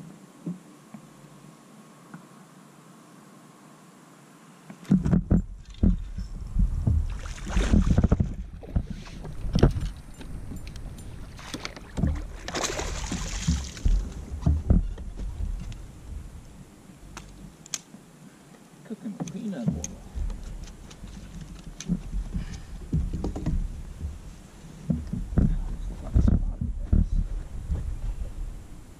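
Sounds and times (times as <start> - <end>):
water splashing: 6.9 - 14.8
knocks against kayak hull: 11.5 - 15.6, 21.9 - 24.2.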